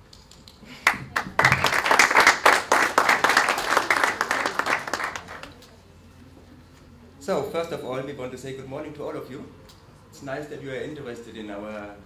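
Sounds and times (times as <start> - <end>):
audience applauding: 0.8 - 5.6.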